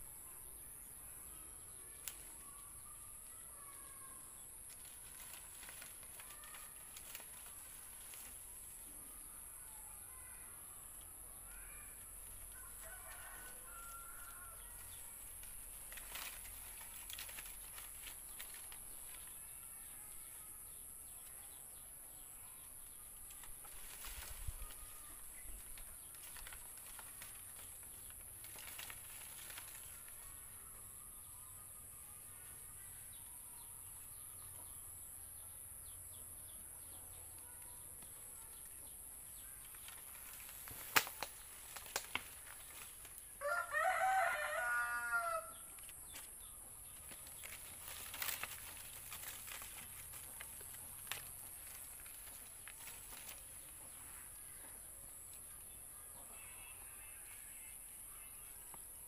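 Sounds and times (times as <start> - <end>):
faint outdoor background: 0.0 - 59.0
rooster crowing: 12.6 - 14.8, 43.4 - 45.6.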